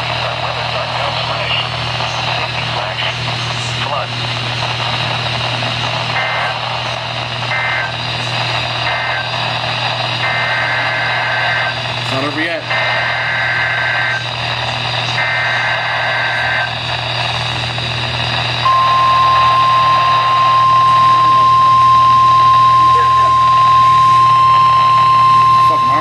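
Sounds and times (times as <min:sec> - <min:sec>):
harsh warbling data bursts: 0:00.1 - 0:26.0
steady warning alarm tone: 0:06.1 - 0:26.0.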